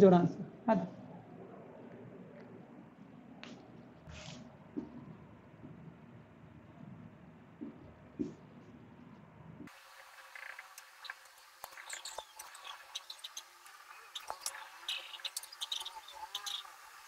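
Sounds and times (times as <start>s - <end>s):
marker squeaking on whiteboard: 10.3s - 16.8s.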